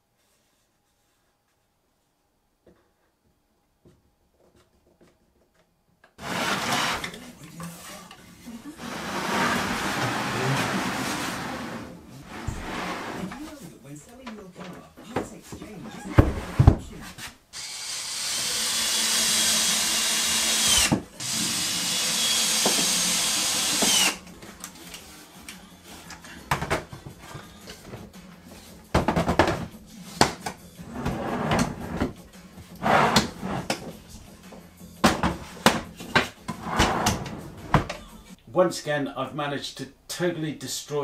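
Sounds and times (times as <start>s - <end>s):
power drill whining: 17.6s - 24.3s.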